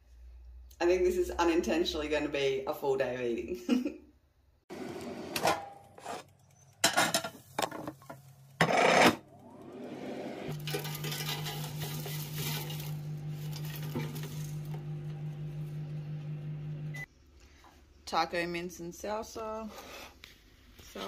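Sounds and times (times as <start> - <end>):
dishes and cookware clattering: 6.8 - 8.2, 10.5 - 14.8
electric appliance hum: 8.6 - 17.1.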